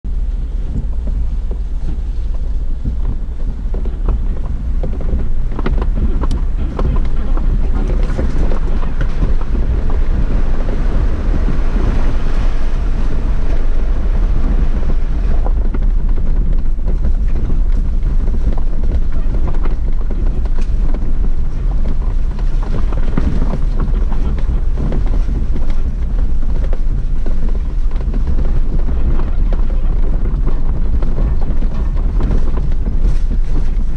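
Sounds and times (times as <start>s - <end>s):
vehicle low rumble: 0.0s - 33.9s
wind buffeting microphone: 0.0s - 33.9s.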